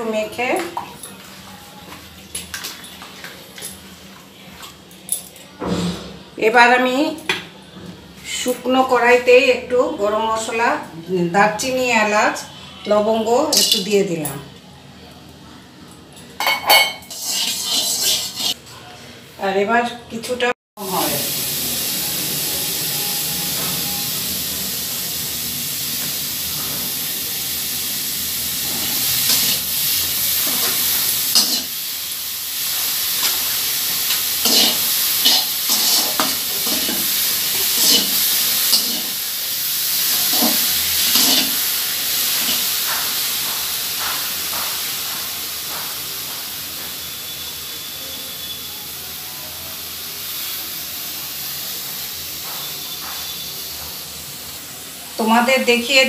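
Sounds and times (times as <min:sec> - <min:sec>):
onions sizzling: 0:16.4 - 0:18.6, 0:20.8 - 0:56.0
spatula scraping metal pan: 0:17.1 - 0:18.6, 0:34.1 - 0:39.2.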